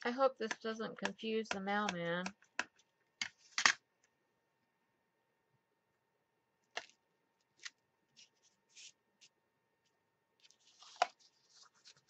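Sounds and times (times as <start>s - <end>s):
paper envelope rustles: 10.4s - 12.0s.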